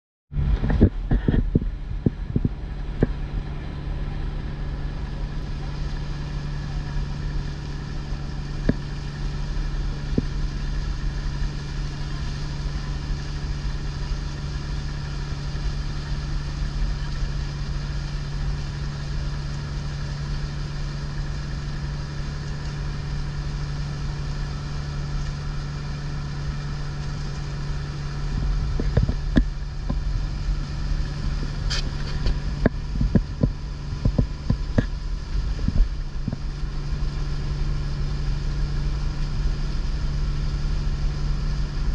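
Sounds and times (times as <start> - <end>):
wind buffeting microphone: 0.3 - 5.7, 26.4 - 37.8
boat engine droning: 0.3 - 41.9.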